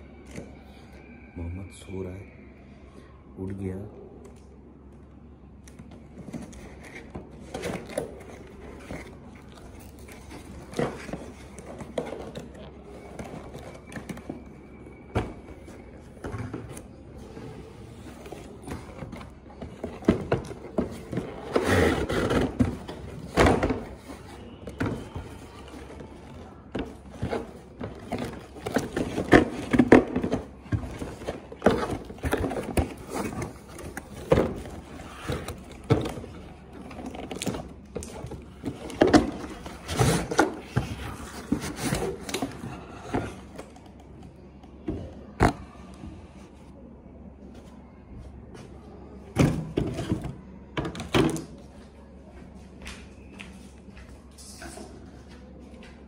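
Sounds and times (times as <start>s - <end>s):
cardboard boxes being handled: 5.9s - 44.0s.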